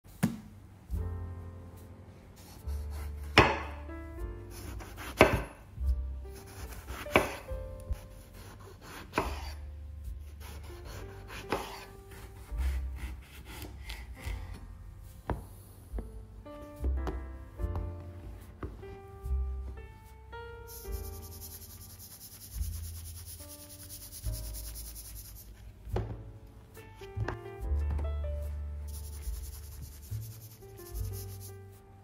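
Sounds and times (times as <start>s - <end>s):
knife slicing eggplant: 4.6s - 5.6s, 6.4s - 9.6s, 10.2s - 14.6s.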